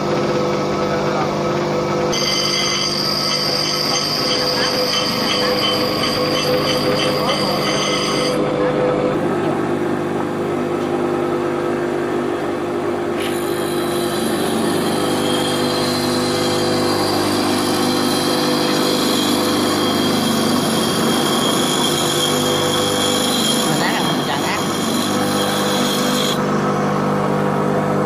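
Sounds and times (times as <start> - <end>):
bench grinder motor hum: 0.0 - 28.0
steel grinding on wheel: 2.1 - 8.4, 13.2 - 26.4.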